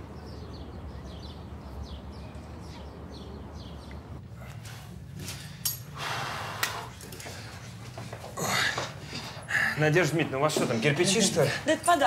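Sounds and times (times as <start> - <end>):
rustling shuffle of people: 6.8 - 12.0.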